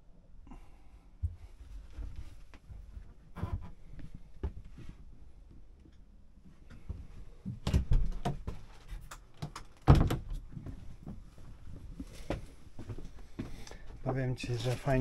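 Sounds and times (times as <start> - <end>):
door knocks and rattles: 9.9 - 10.4.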